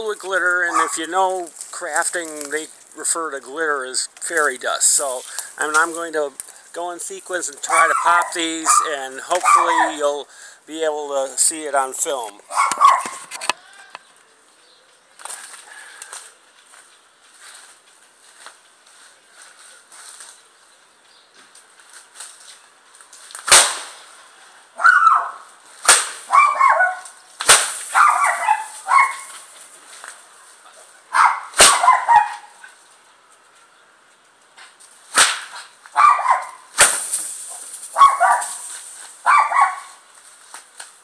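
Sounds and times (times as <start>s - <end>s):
dog barking: 0.7s - 1.0s, 7.7s - 10.0s, 12.5s - 13.2s, 24.8s - 25.4s, 26.3s - 27.1s, 27.9s - 29.3s, 31.1s - 32.6s, 36.0s - 36.6s, 38.0s - 38.5s, 39.2s - 40.0s
bullwhip cracking: 23.4s - 24.0s, 25.8s - 26.3s, 27.4s - 28.0s, 31.5s - 32.0s, 35.1s - 35.8s.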